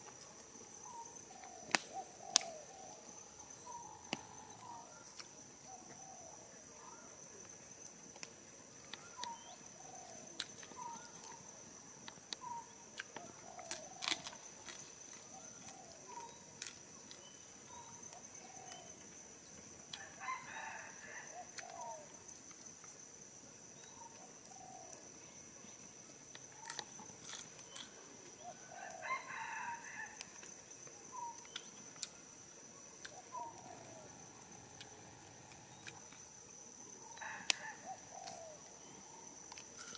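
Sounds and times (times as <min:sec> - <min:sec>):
campfire crackling: 0:00.0 - 0:05.7, 0:07.4 - 0:20.2
high insect drone: 0:00.0 - 0:39.9
rooster crowing: 0:19.9 - 0:21.5, 0:28.6 - 0:30.3, 0:37.2 - 0:38.4.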